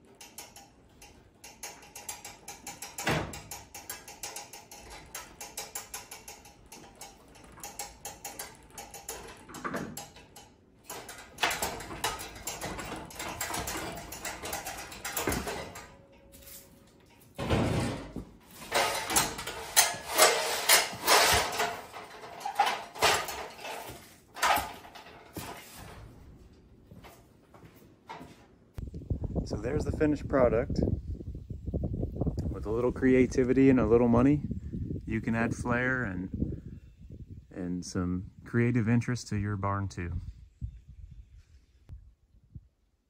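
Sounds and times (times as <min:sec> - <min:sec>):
metal ladder clanking: 0:00.0 - 0:27.2.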